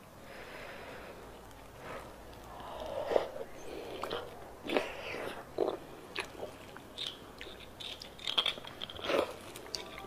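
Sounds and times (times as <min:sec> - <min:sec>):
person chewing: 0:01.3 - 0:10.0
mouth clicks and smacks: 0:02.3 - 0:09.8.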